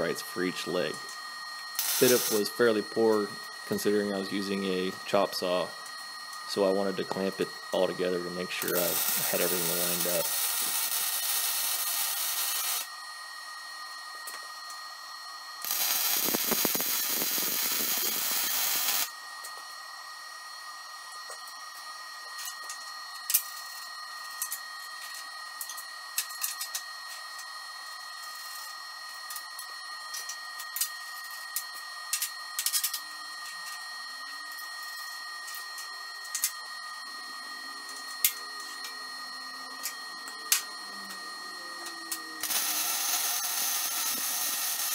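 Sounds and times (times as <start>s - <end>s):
welding arc hiss and crackle: 1.8s - 5.7s, 6.5s - 12.9s, 15.6s - 19.6s, 42.4s - 44.9s.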